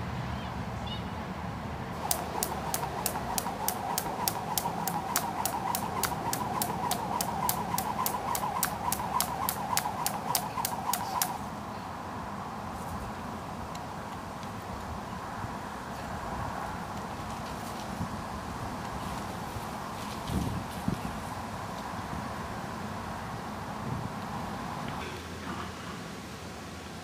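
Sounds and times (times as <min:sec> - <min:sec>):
skipping rope slapping on tarmac: 0:02.0 - 0:11.4
rope whirring: 0:02.0 - 0:11.5.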